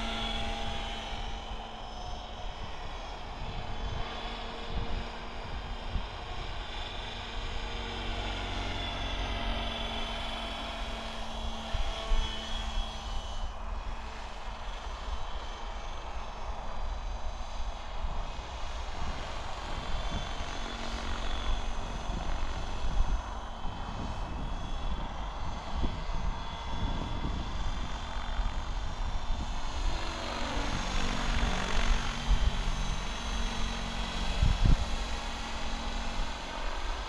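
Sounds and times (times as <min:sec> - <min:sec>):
rc helicopter motor whine: 0:00.0 - 0:37.0
wind buffeting microphone: 0:18.1 - 0:37.0.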